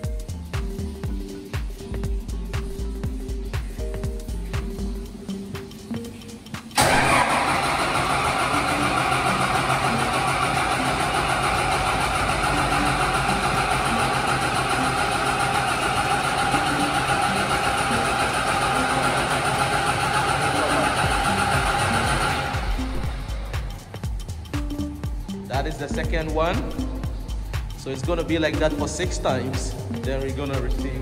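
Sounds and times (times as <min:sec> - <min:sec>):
diesel engine cranking and running: 0:06.8 - 0:23.9.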